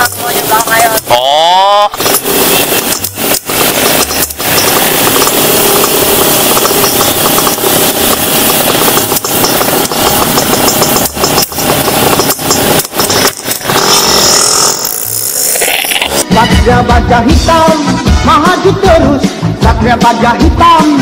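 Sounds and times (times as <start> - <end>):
two-stroke motorcycle engines idling: 0.0 - 14.4.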